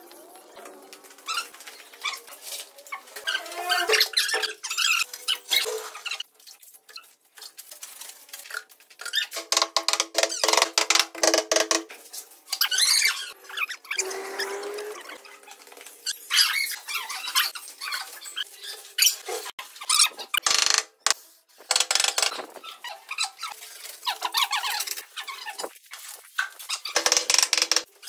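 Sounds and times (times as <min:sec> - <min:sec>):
squeaks: 0:02.9 - 0:06.3, 0:26.4 - 0:27.9.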